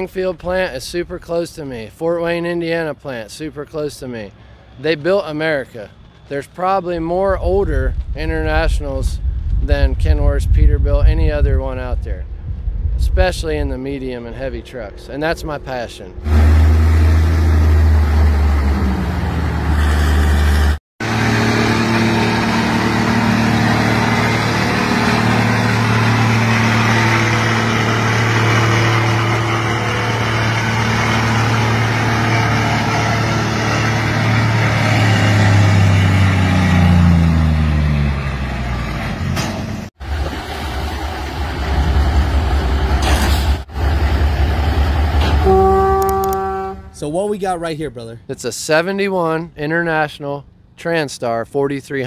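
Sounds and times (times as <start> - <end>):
truck engine running at low speed: 4.3 - 9.9, 15.6 - 47.0
truck engine working hard: 16.2 - 46.7.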